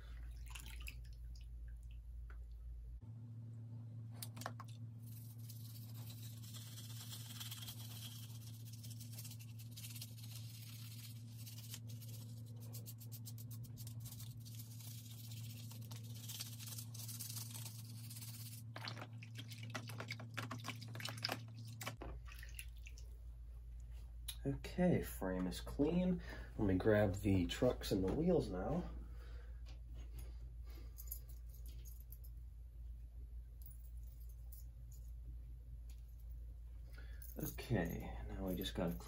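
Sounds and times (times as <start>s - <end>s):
steady low hum: 0.0s - 39.0s
toothbrush scrubbing: 5.0s - 21.8s
splashing in water: 18.7s - 23.0s.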